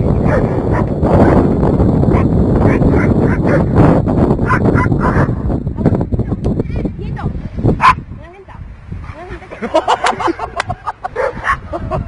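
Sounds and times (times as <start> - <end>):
wind noise on microphone: 0.0 - 12.0
dog barking: 0.2 - 1.4, 2.1 - 3.7, 4.4 - 5.4, 7.8 - 8.0, 11.1 - 11.7.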